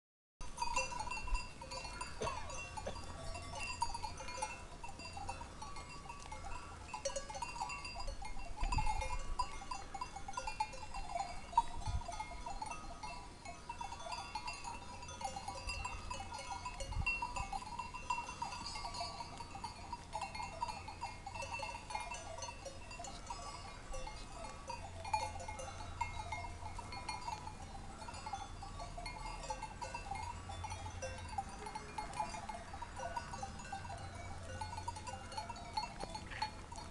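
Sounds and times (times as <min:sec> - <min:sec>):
animal bells clinking: 0:00.4 - 0:36.9.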